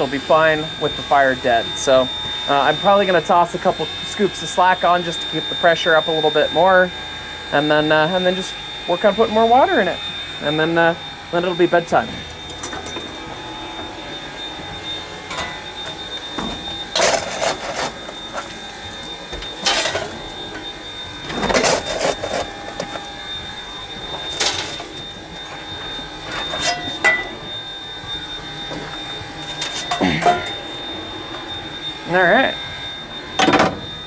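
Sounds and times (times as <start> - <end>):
coal shovel scraping: 17.0 - 18.1, 21.4 - 22.8, 29.5 - 30.5.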